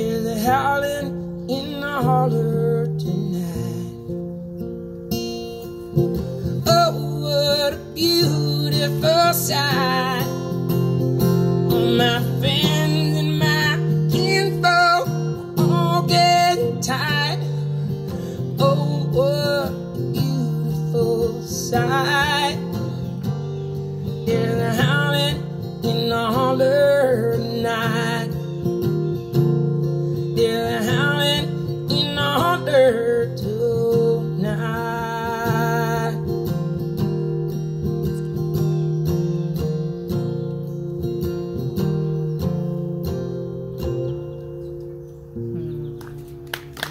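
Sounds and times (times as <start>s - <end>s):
man singing: 0.0s - 4.2s, 6.5s - 10.7s, 11.7s - 23.2s, 24.1s - 28.7s, 30.3s - 36.7s
acoustic guitar strummed: 0.0s - 46.9s.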